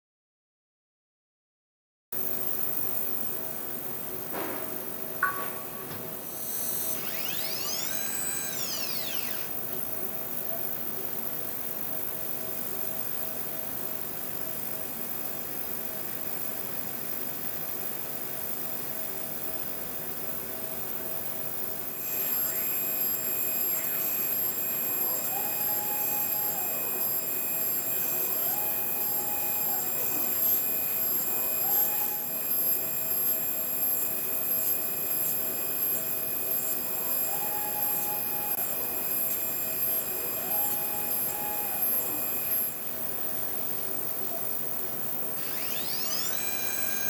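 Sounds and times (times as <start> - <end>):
machine whine: 2.2 - 47.0
motor tone rising and falling: 5.2 - 9.6, 22.0 - 42.8, 45.4 - 47.0.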